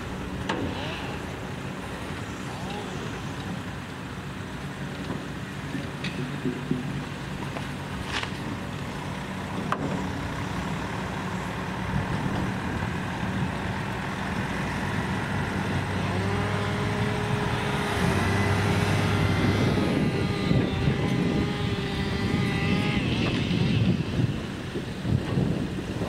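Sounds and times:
truck diesel engine running: 0.0 - 26.0
whine: 9.7 - 26.0.

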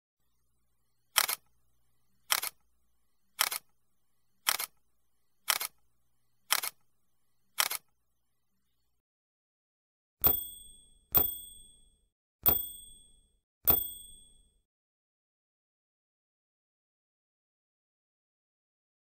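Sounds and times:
camera shutter clicks: 1.2 - 1.4, 2.3 - 2.6, 3.4 - 3.6, 4.5 - 4.7, 5.5 - 5.8, 6.5 - 6.8, 7.6 - 7.9.

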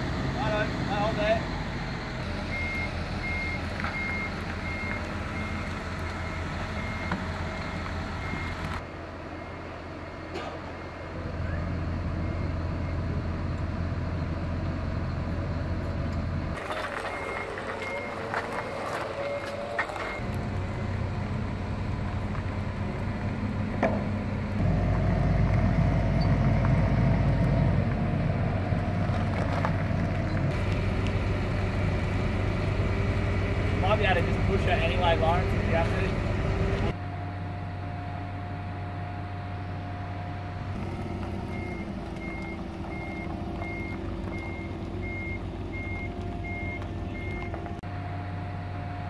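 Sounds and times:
diesel engines running: 0.0 - 49.0
reversing alarm beeps: 2.5 - 8.6, 16.7 - 20.2, 41.0 - 47.6.

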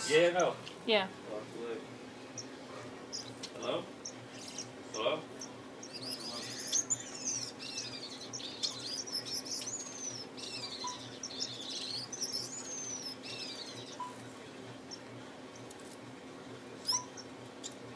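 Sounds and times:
finch singing: 2.4 - 14.2, 16.8 - 17.8.

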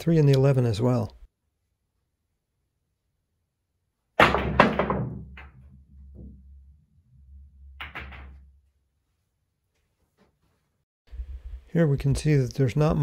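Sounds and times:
pool balls colliding: 4.2 - 6.7, 7.6 - 8.6
balls rolling on table: 7.6 - 8.5
cue striking ball: 7.8 - 8.5.

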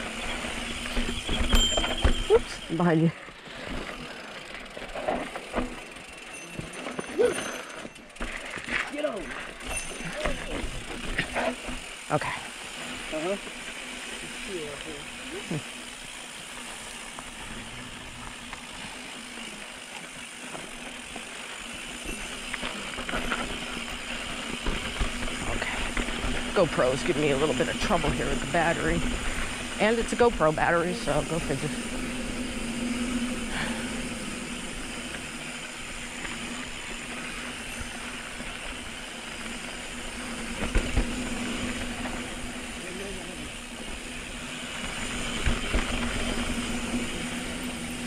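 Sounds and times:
tyre and wind noise: 0.0 - 2.8
bike frame rattling and clicking: 0.0 - 48.0
bike tyre hiss: 31.7 - 48.0.

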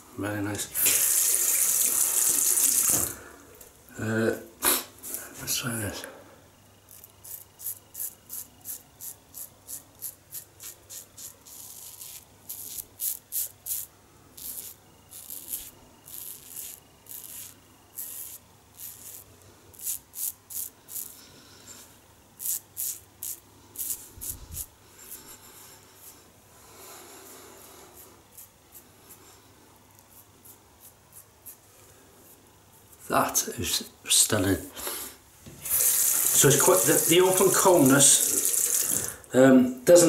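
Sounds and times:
razor scraping stubble: 6.9 - 21.2, 22.4 - 25.4, 27.7 - 29.2, 30.0 - 31.6, 35.6 - 39.1.

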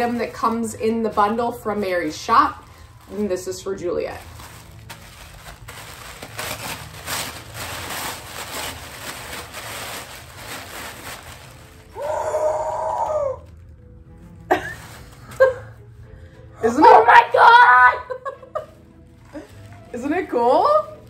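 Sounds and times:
package wrapping rustling: 0.0 - 15.9, 18.2 - 21.0
girl exclaiming excitedly: 16.6 - 18.2.

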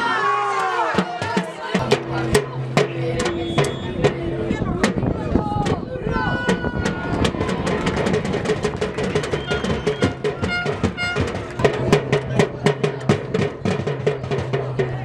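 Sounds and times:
drum kit beat: 6.4 - 15.0.

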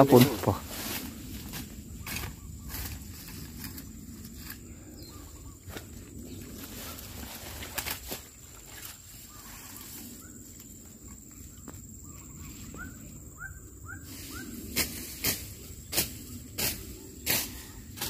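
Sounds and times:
grass and leaves rustling: 0.0 - 18.0
faint bird chirps: 4.3 - 7.1, 9.1 - 14.7.

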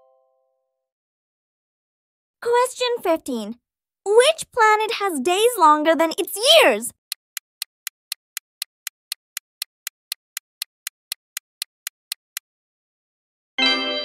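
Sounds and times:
clock-like ticking: 7.0 - 12.5.

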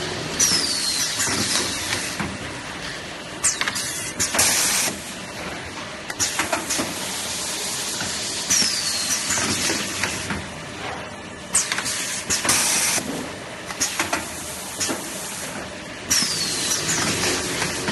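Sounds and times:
packing machine knocking and clattering: 12.4 - 17.9.

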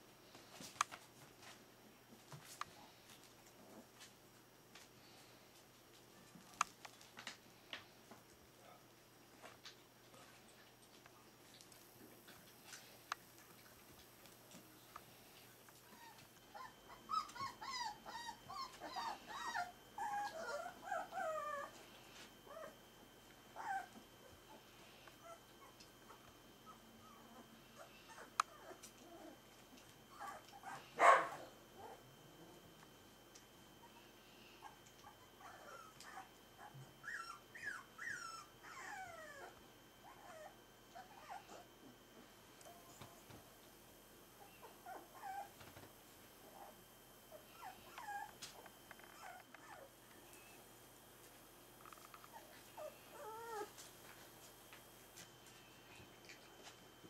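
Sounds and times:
puppy whining and yelping: 15.9 - 21.8, 22.5 - 22.8, 23.6 - 24.6, 25.2 - 29.4, 30.1 - 32.0, 33.8 - 41.7, 44.4 - 45.6, 47.3 - 50.6, 52.0 - 53.8.

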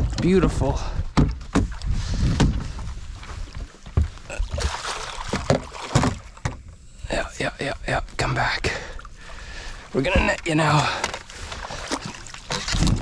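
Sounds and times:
knocks and rattles against boat: 0.0 - 6.8, 10.0 - 13.0
fish splashing at the surface: 4.5 - 6.2.

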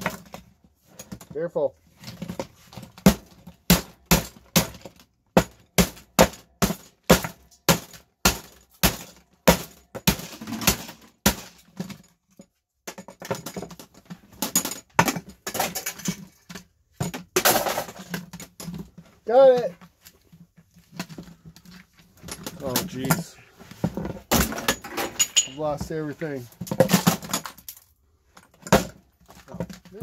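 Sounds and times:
hammer striking plastic and metal: 2.1 - 12.1.

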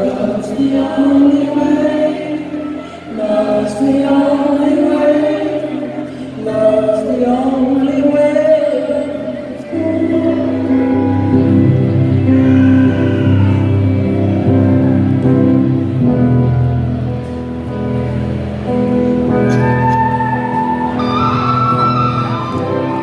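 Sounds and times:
person singing: 0.0 - 16.6
rock band playing: 10.6 - 23.0.

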